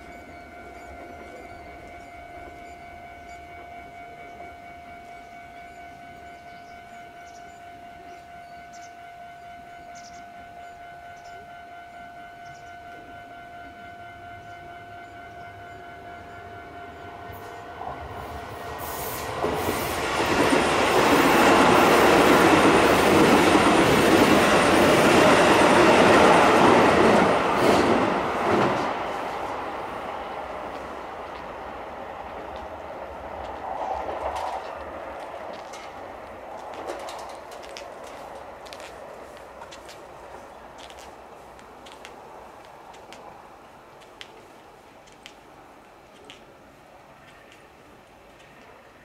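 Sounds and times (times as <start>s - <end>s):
level-crossing alarm ringing: 0.0s - 31.1s
train wheels clattering on rails: 18.8s - 29.2s, 32.2s - 43.3s.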